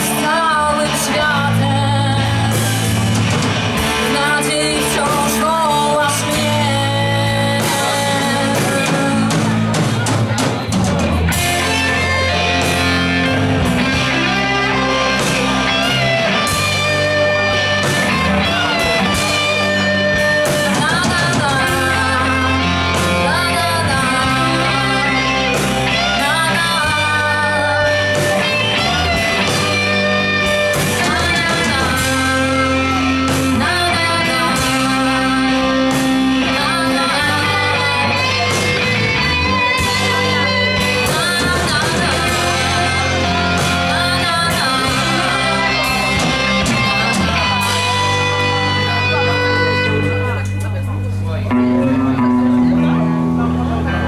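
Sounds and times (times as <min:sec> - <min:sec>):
woman singing: 0:00.0 - 0:03.0, 0:03.8 - 0:10.1, 0:18.4 - 0:48.0
drums: 0:00.0 - 0:54.0
electric bass: 0:00.0 - 0:54.0
electric guitar: 0:00.0 - 0:54.0.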